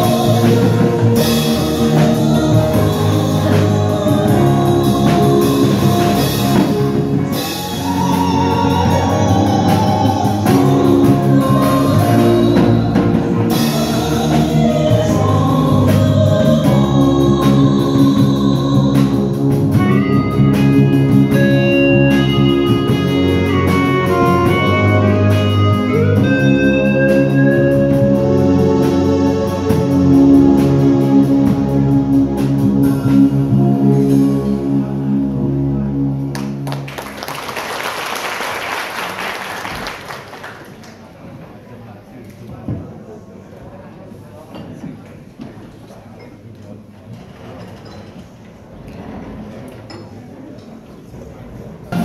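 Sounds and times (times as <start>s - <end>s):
women singing: 0.0s - 20.2s
band playing with drums: 0.0s - 35.6s.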